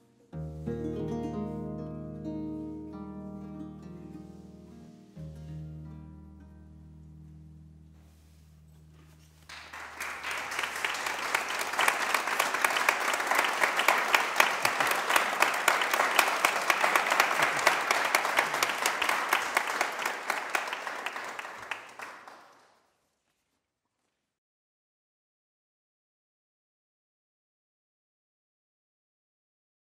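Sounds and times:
audience applauding: 0:09.4 - 0:22.8.

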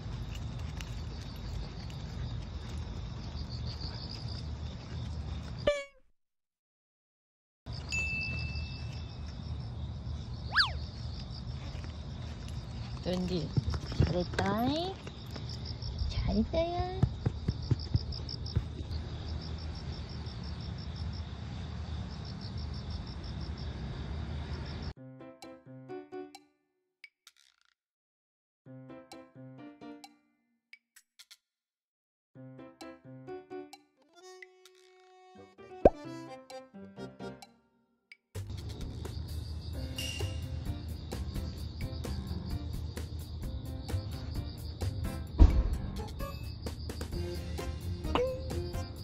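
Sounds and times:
crickets chirping: 0:00.0 - 0:05.7, 0:07.7 - 0:24.9, 0:38.5 - 0:49.0.

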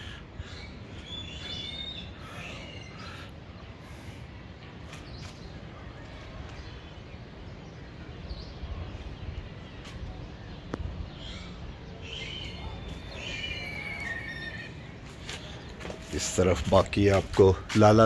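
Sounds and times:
wind buffeting microphone: 0:04.4 - 0:13.9.

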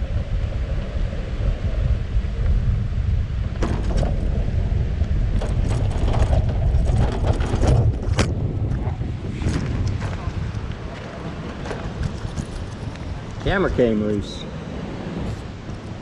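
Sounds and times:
wind rumbling on microphone: 0:00.0 - 0:16.0
bicycle rolling over rough track: 0:00.1 - 0:16.0
basket and mount rattling: 0:05.4 - 0:08.4.

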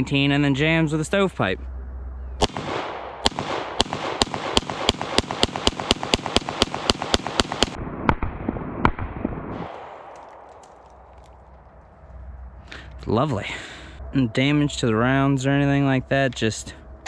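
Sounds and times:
pistol shots: 0:02.4 - 0:11.0.

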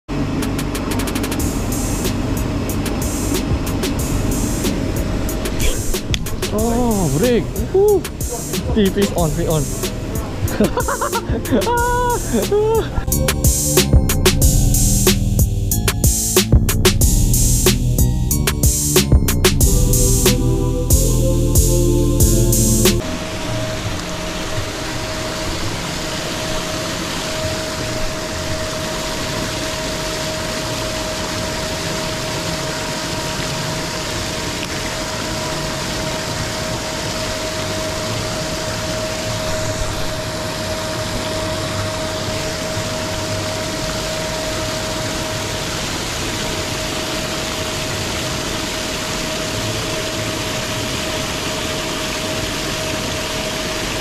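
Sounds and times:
motor hum: 0:00.1 - 0:32.6.

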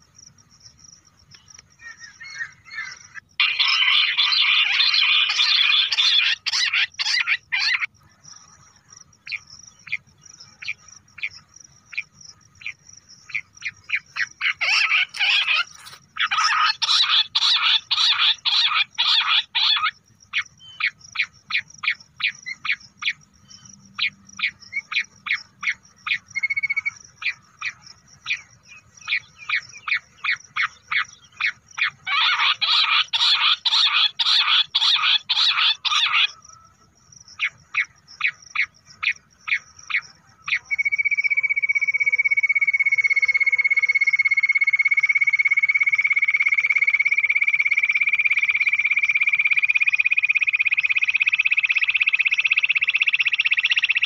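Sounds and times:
quail calls: 0:01.8 - 0:07.9, 0:11.9 - 0:23.2, 0:29.1 - 0:36.7.

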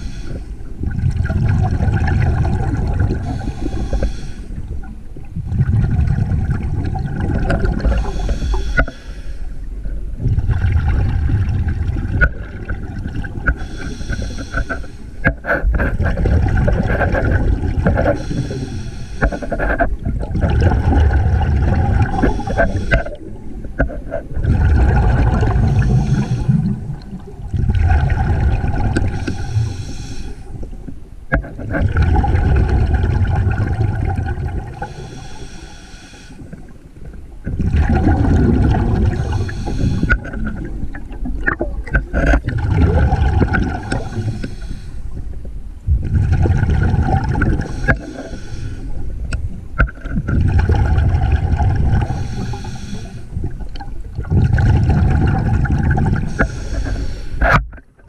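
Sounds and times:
regulator breathing hiss: 0:00.0 - 0:00.7, 0:03.2 - 0:04.6, 0:07.9 - 0:09.7, 0:13.5 - 0:15.2, 0:18.2 - 0:19.8, 0:22.1 - 0:23.2, 0:25.7 - 0:26.8, 0:29.0 - 0:30.6, 0:34.8 - 0:36.7, 0:39.1 - 0:40.2, 0:43.9 - 0:45.2, 0:47.6 - 0:49.1, 0:52.0 - 0:53.4, 0:56.3 - 0:57.4
exhaust bubbles rushing: 0:00.9 - 0:03.2, 0:20.2 - 0:22.4, 0:24.4 - 0:26.7, 0:27.5 - 0:29.1, 0:31.8 - 0:34.8, 0:37.6 - 0:39.4, 0:42.4 - 0:44.2, 0:45.9 - 0:47.7, 0:50.3 - 0:52.1, 0:54.2 - 0:56.3.

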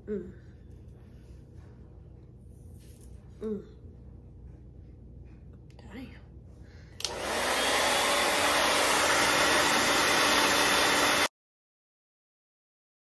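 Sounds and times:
hair dryer switch click: 0:07.0 - 0:07.8
hair dryer running: 0:07.0 - 0:11.3.

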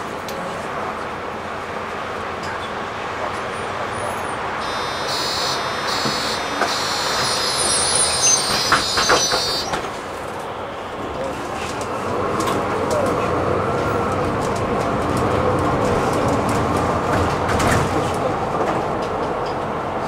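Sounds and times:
bus engine and road noise: 0:00.0 - 0:20.0
high-pitched whine: 0:04.6 - 0:10.0.

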